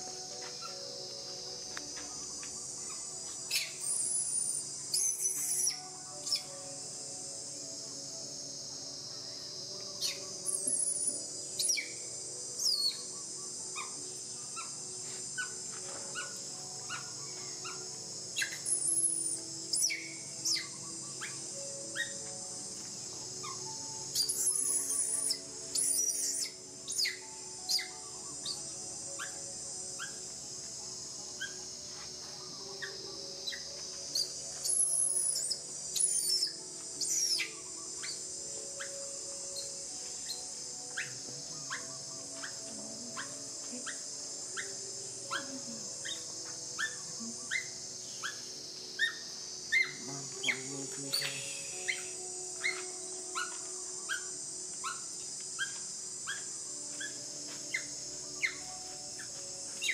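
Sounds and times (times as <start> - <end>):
baby monkey crying: 33.4 - 38.9, 46.8 - 48.4, 49.0 - 58.6.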